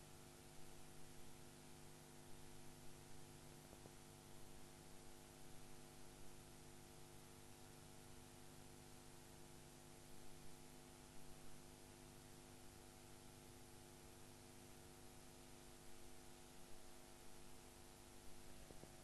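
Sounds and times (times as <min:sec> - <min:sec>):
faint steady hiss: 0:00.0 - 0:08.3, 0:15.1 - 0:19.0
low electrical hum: 0:00.0 - 0:19.0.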